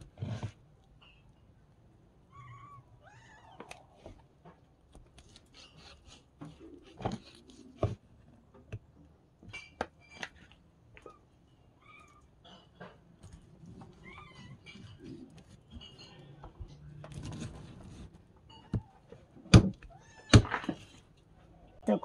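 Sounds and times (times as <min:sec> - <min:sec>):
cat meowing: 0:02.3 - 0:03.9.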